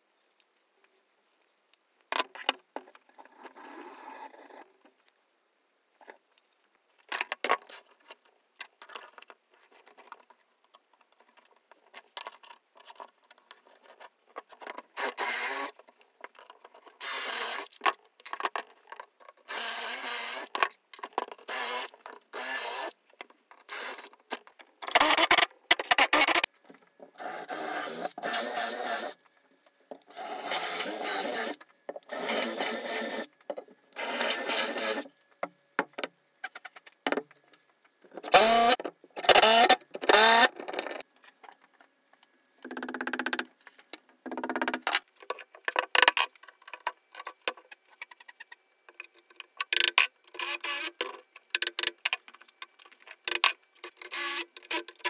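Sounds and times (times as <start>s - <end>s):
cordless drill boring into chipboard: 15.0s - 15.7s, 17.0s - 17.7s, 19.5s - 20.5s, 21.5s - 22.9s, 23.7s - 24.1s, 24.9s - 26.5s, 27.2s - 29.2s, 30.1s - 33.3s, 34.0s - 35.1s, 38.2s - 40.5s, 50.3s - 50.9s, 53.9s - 54.8s.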